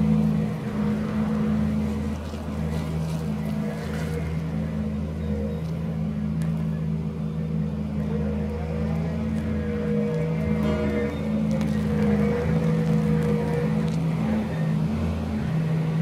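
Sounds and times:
road roller diesel engine running: 0:00.0 - 0:16.0.

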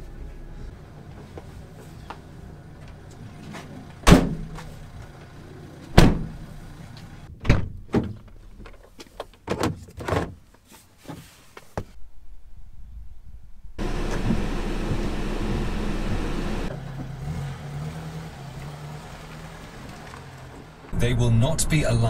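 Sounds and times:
faint low rumble: 0:12.0 - 0:16.7.

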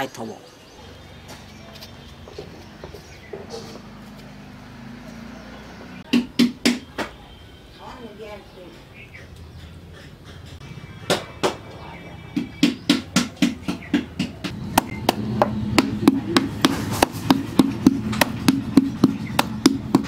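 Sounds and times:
wooden paddle beating clay pot: 0:12.3 - 0:20.0.

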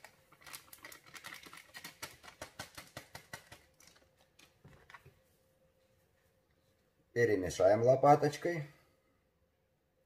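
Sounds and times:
paper sachet crackling and tapping: 0:00.0 - 0:05.1.

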